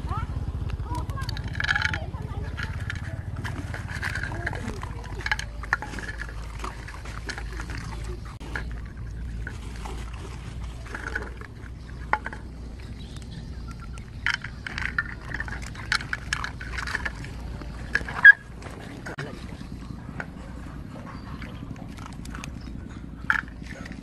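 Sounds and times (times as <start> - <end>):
steady low rumble: 0.0 - 24.0
dogs chewing and lapping: 0.1 - 24.0
teeth and plates clicking: 0.6 - 9.6, 10.8 - 18.8, 21.7 - 24.0.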